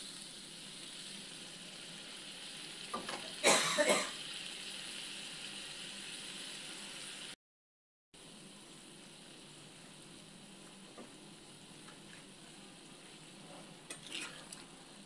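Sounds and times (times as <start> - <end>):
curry sizzling and bubbling: 0.0 - 7.4, 8.2 - 15.0.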